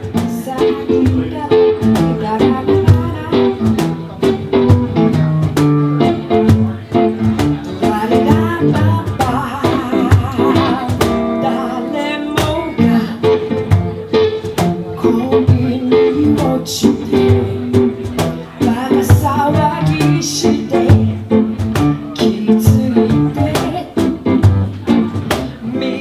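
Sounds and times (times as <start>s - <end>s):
acoustic guitar: 0.0s - 26.0s
woman singing with vibrato: 0.1s - 3.7s, 7.8s - 13.6s, 15.0s - 17.9s, 18.6s - 21.3s, 22.1s - 24.0s, 25.6s - 26.0s
cajon hits: 16.3s - 25.7s.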